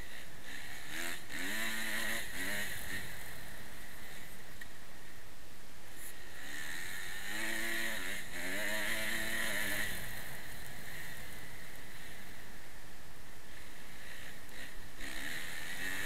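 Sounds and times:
motorbike engine revving: 0.0s - 4.6s, 5.9s - 12.7s, 13.5s - 16.0s.

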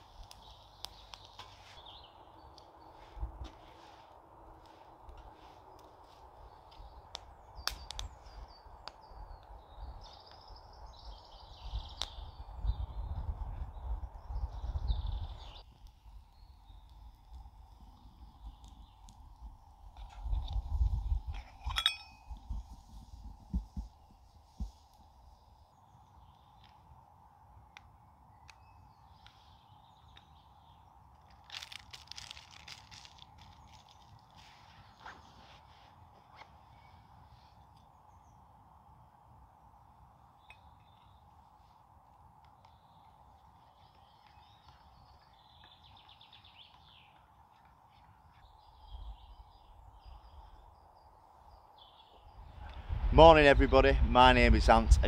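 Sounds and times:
close crackling: 0.0s - 2.8s, 31.1s - 36.5s.

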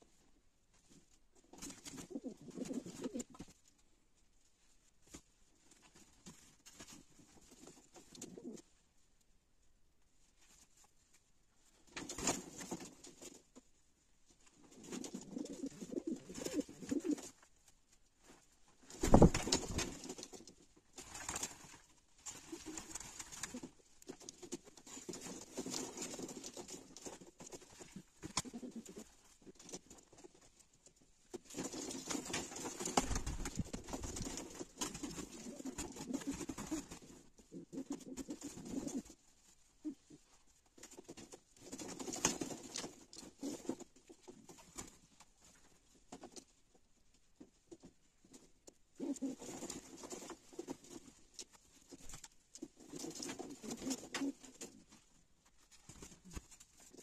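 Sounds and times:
pigeons cooing: 2.0s - 3.3s, 15.0s - 17.3s.

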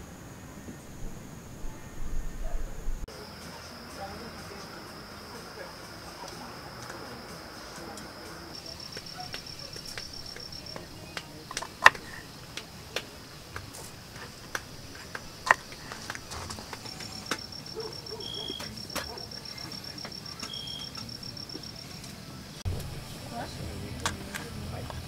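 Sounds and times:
insect pulsing trill: 14.0s - 21.8s.

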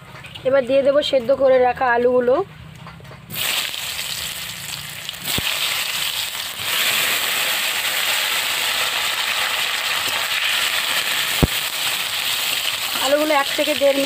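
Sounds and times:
potatoes sizzling in hot oil: 3.3s - 14.0s.

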